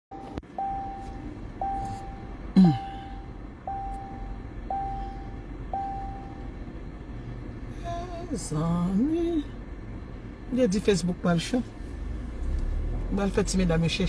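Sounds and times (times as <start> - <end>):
car warning chime: 0.1 - 6.9.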